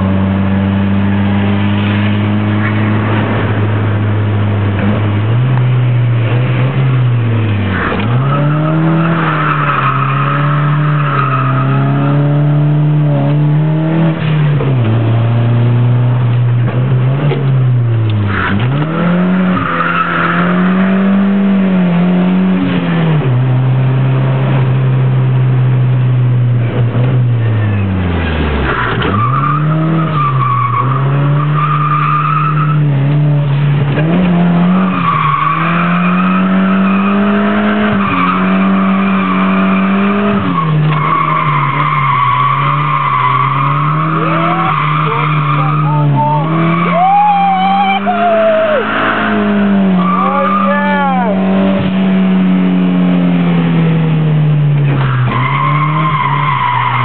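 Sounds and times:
car engine revving: 0.0s - 57.0s
tyres squealing: 40.6s - 51.5s.

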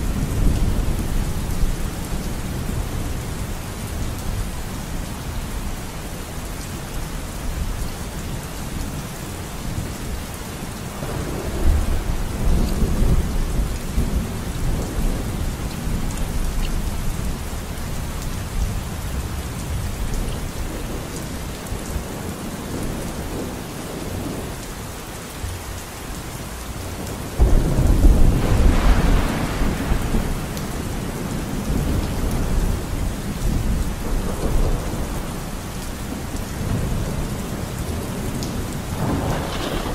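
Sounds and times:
steady rain: 0.0s - 39.9s
thunder rolling: 27.3s - 35.4s, 39.0s - 39.9s.

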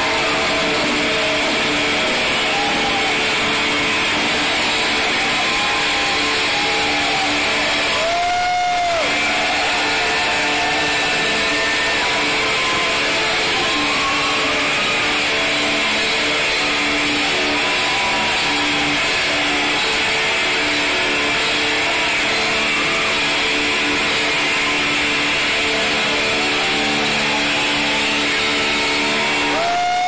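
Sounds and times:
metal band playing live: 0.0s - 30.0s.

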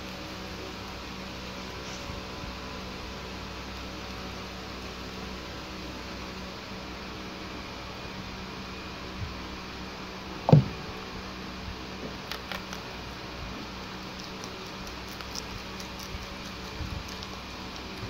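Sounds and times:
steady background hum: 0.0s - 18.0s
rabbits chewing: 0.4s - 8.4s, 12.0s - 18.0s
loud low thump: 10.5s - 11.0s.

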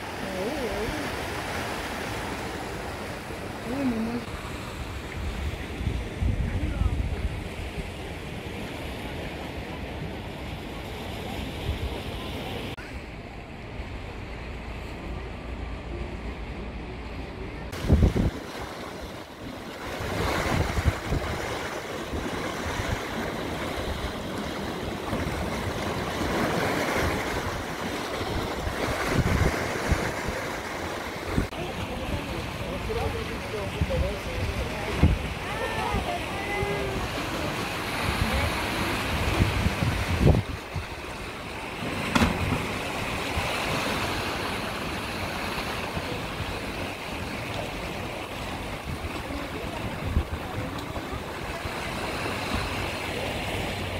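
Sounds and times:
surf washing over rocks: 0.0s - 53.9s
wind buffeting microphone: 5.0s - 8.6s, 17.7s - 30.6s, 37.9s - 41.3s
body splashing into sea: 41.7s - 44.6s.

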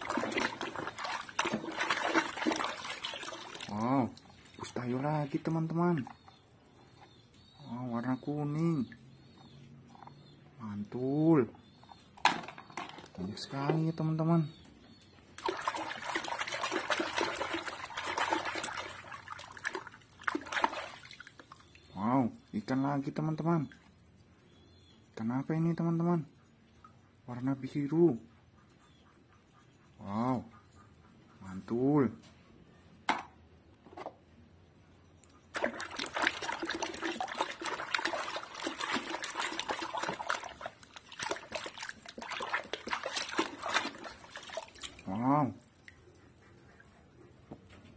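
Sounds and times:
hand scrubbing toy in soapy water: 0.0s - 6.3s, 15.4s - 21.8s, 35.5s - 46.2s
water sloshing and splashing: 0.0s - 6.4s, 15.3s - 21.9s, 35.5s - 46.4s.

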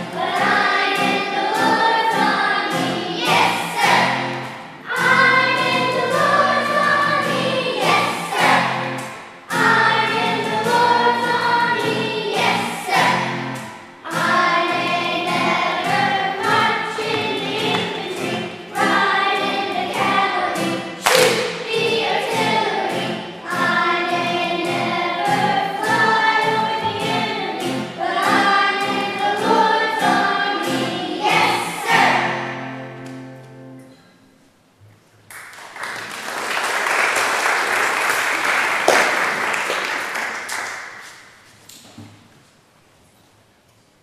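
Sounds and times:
children's choir singing: 0.0s - 33.0s
audience applauding: 35.3s - 41.4s.

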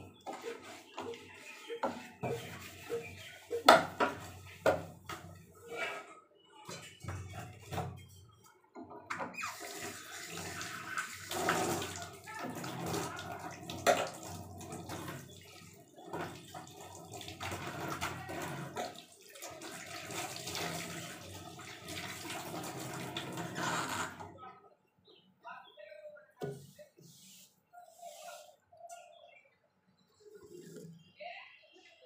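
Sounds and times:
hands washing under water: 0.0s - 5.5s, 9.4s - 24.2s
tap water running into steel sink: 9.4s - 24.2s.

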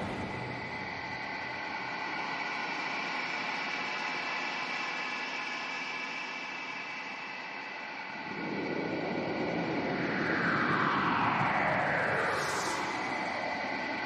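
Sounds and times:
low rushing rumble: 0.0s - 1.4s.

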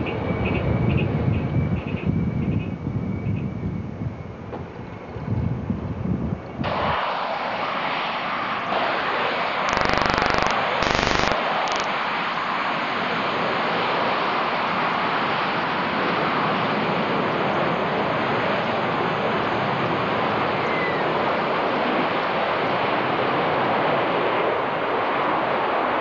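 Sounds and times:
jet engines rushing: 6.4s - 26.0s
loud rapid crackle: 8.7s - 11.9s.

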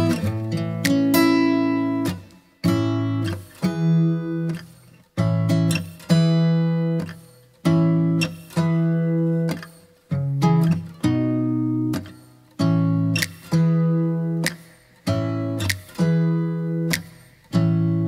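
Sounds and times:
acoustic guitar chords ringing: 0.0s - 18.0s.

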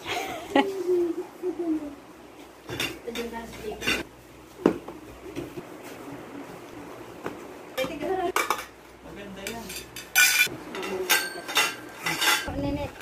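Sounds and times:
metal tubes clinking and clattering: 9.7s - 12.6s.

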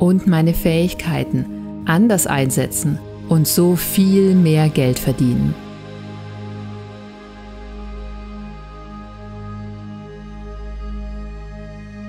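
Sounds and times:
calm background music: 0.0s - 12.0s.

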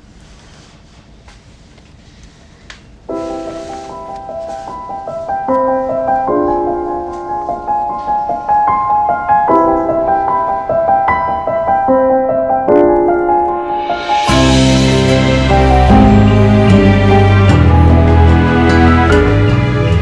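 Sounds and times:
slow solo piano: 3.1s - 16.8s.

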